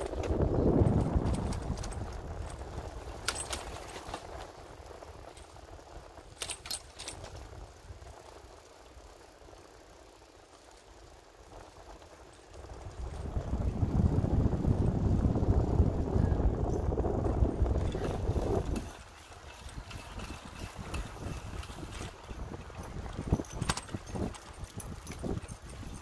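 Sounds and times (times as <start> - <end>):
wind rumbling on microphone: 0.0 - 26.0
sharp rattling clicks: 6.3 - 7.5.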